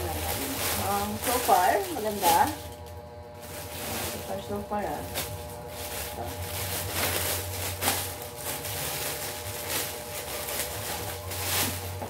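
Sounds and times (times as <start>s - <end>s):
low steady hum: 0.0s - 12.0s
plastic wrapping crinkling: 0.0s - 12.0s.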